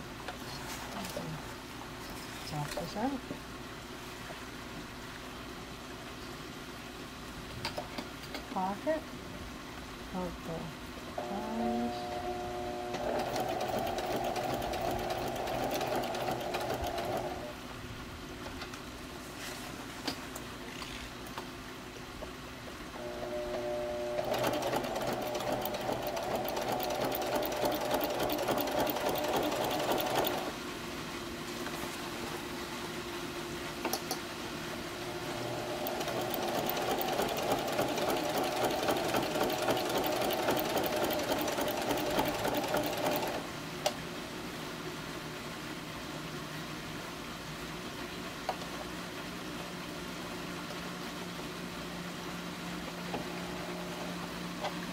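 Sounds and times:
sewing machine stitching: 12.9s - 17.5s, 24.0s - 30.5s, 35.6s - 43.4s.

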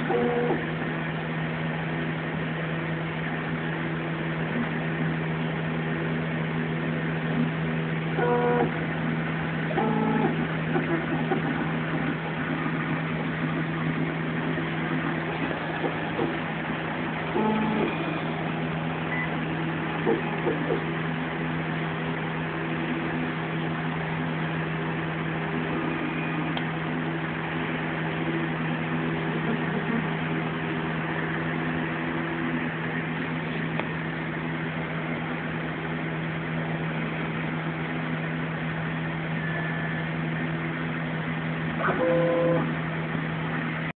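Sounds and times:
stepper motors whining: 0.0s - 0.8s, 8.1s - 9.0s, 9.6s - 21.1s
printer low hum: 0.0s - 43.9s.

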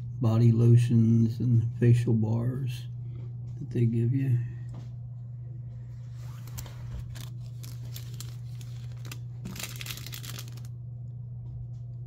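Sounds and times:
steady low hum: 0.0s - 12.0s
packet crinkling and rustling: 6.1s - 10.8s.

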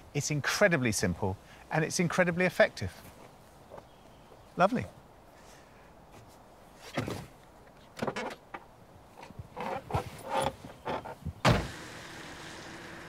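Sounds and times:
steady car noise: 10.4s - 13.0s
car door slamming: 11.4s - 11.8s.

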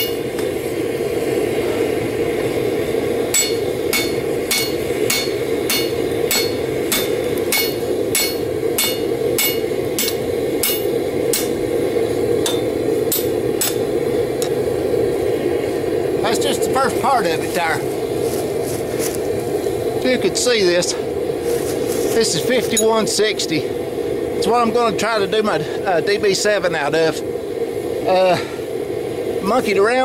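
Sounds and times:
gas forge rushing: 0.0s - 30.0s
hammer striking metal on anvil: 3.3s - 11.6s, 12.4s - 13.9s.

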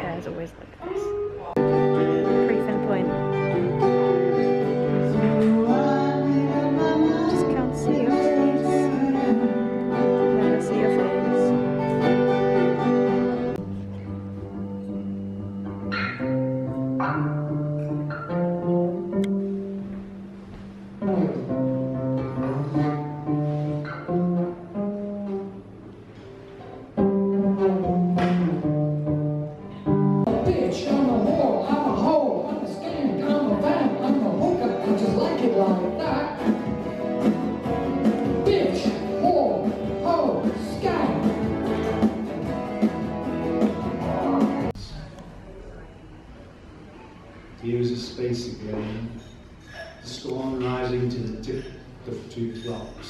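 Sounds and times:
guitar: 0.0s - 45.9s
person singing: 3.8s - 12.0s.

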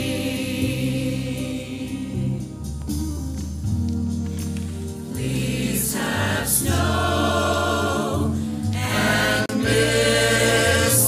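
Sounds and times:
choir holding a low chord: 0.0s - 2.8s, 5.0s - 11.0s.

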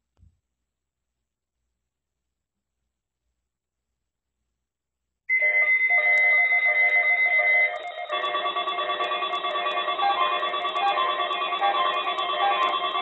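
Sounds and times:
steady high beep: 5.3s - 13.0s
overlapping pulsing alert tones: 5.4s - 13.0s.

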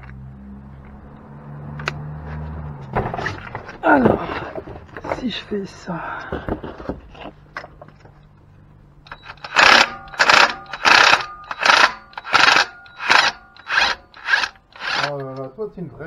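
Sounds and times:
impact wrench bursts: 9.1s - 15.2s.

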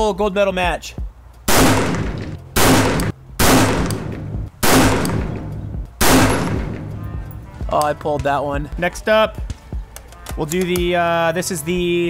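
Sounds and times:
rifle shots with echo: 1.5s - 6.9s.

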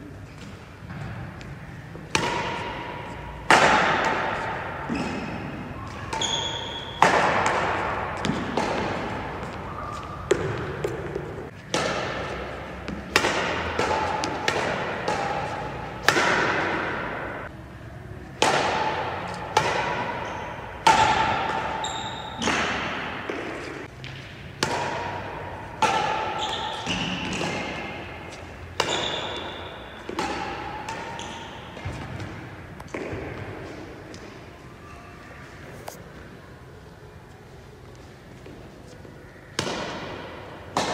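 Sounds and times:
rackets hitting shuttlecock: 0.4s - 17.6s, 18.3s - 34.4s, 39.5s - 40.9s
shoes squeaking on court floor: 4.2s - 11.7s, 19.2s - 24.2s, 26.3s - 36.0s.

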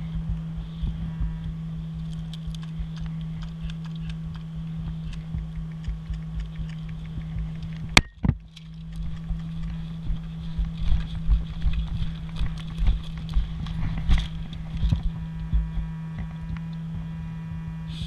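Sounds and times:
low thumps: 0.0s - 18.0s
steady low hum: 0.0s - 18.0s
wind buffeting microphone: 0.0s - 18.0s
footsteps through grass: 8.4s - 16.4s.

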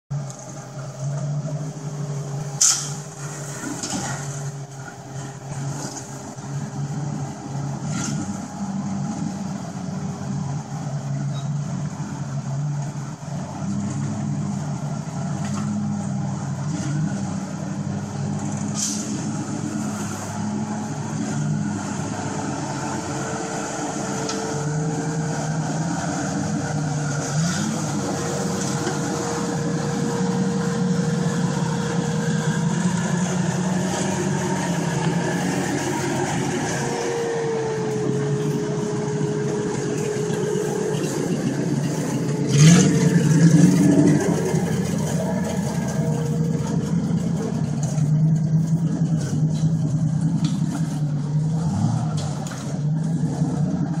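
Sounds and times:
off-road engine at low revs: 0.0s - 54.0s.

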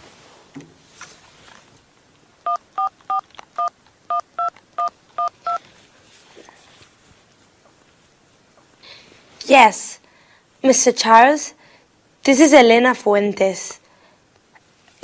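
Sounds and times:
touch-tone keypad beeps: 2.5s - 5.6s.

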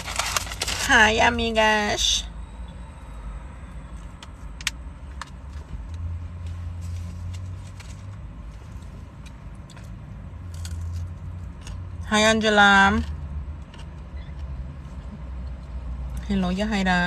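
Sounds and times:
paper food bag crackling: 0.0s - 1.1s
low car rumble: 0.0s - 17.0s.

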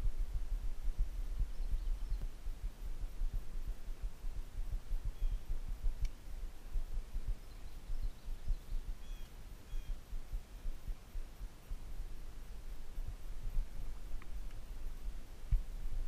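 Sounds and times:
faint bird chirps: 0.8s - 15.4s
sharp click: 6.0s - 6.2s.

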